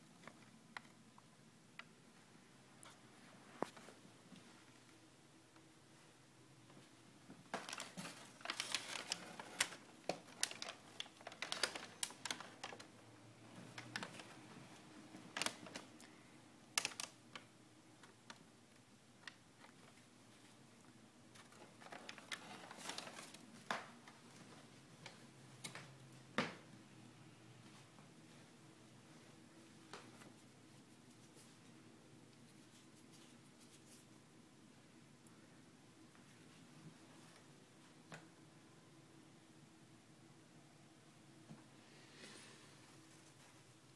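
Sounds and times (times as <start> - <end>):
paper and cardboard crackling: 7.5 - 14.5, 15.3 - 16.0, 21.4 - 25.2.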